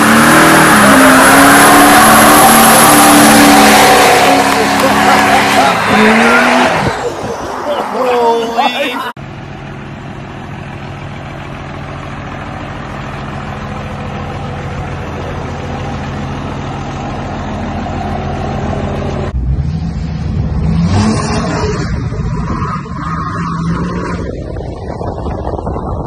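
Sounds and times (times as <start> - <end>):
diesel truck engine running: 8.8 - 21.1
rough rumble: 10.0 - 26.0.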